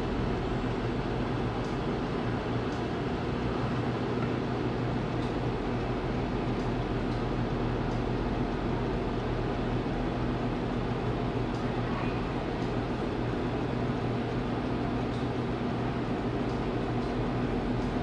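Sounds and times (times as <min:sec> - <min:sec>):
oven fan humming: 0:00.0 - 0:18.0.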